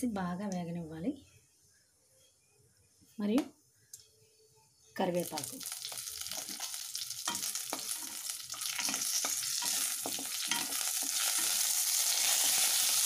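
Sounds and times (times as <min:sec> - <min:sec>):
spices sizzling in hot oil: 0:05.0 - 0:13.0.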